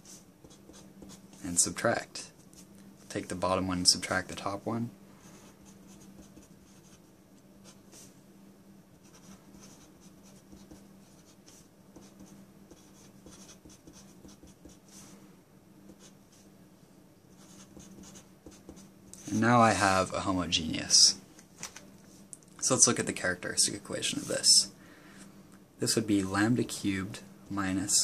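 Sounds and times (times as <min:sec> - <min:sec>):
pencil scratching on paper: 0:00.0 - 0:01.4, 0:05.4 - 0:07.0, 0:09.0 - 0:15.1, 0:17.4 - 0:19.5.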